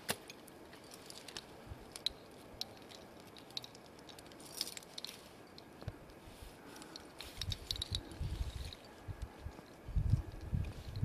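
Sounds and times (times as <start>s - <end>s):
metal gear clinking on ice: 0.2s - 5.7s, 6.8s - 9.0s.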